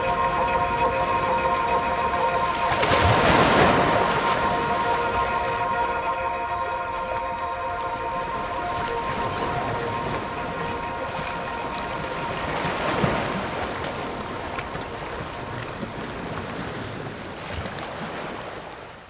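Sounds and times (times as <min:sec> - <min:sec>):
background music: 0:00.0 - 0:14.6
waves washing on shore: 0:00.0 - 0:19.0
wind: 0:00.0 - 0:19.0.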